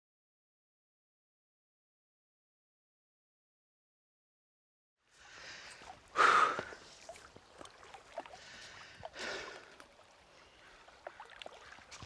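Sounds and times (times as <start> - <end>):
person exhaling loudly: 6.2 - 6.8.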